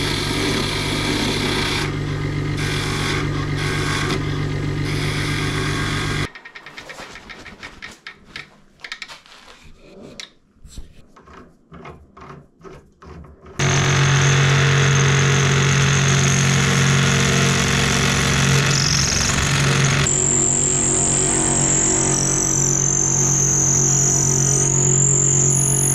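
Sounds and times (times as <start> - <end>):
drill bit boring into wood: 0.0 - 6.3, 13.6 - 25.9
wood lathe running: 0.0 - 7.3, 13.6 - 25.9.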